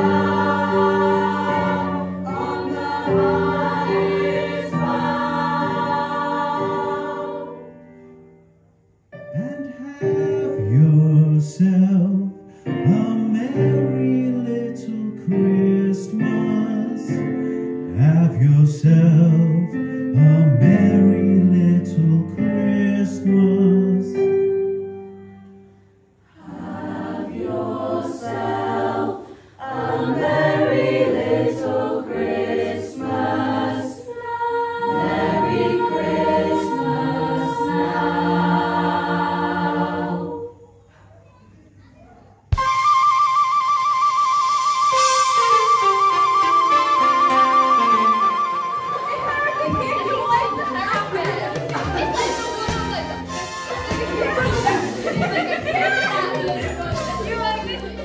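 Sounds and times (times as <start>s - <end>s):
mixed choir singing: 0.0s - 7.8s, 26.3s - 40.8s, 48.2s - 58.0s
low man's voice singing: 9.2s - 17.2s, 17.9s - 24.2s.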